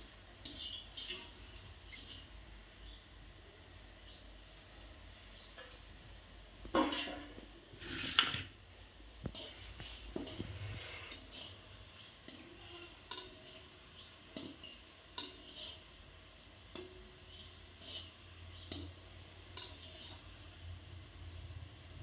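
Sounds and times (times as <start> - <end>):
skimmer scraping steel wok: 0.0 - 2.4, 6.7 - 8.6, 9.2 - 20.8
food frying in oil: 0.0 - 22.0.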